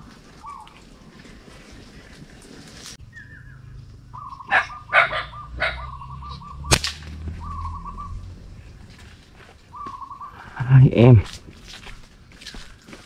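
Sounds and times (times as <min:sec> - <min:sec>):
rustling: 0:00.0 - 0:03.0
bird trilling: 0:03.1 - 0:08.8, 0:09.7 - 0:11.0
slingshot snap: 0:06.7 - 0:07.2.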